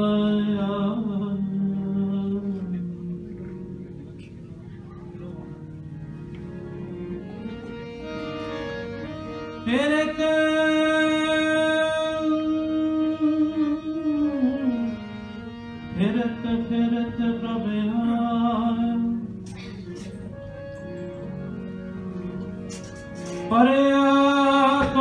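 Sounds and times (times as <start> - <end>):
harmonium playing held notes: 0.0 - 25.0
person singing long notes: 9.6 - 20.0.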